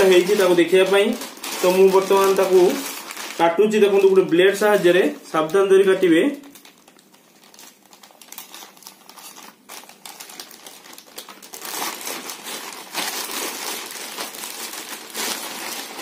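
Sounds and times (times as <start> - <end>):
plastic crinkling and rustling: 0.0 - 16.0.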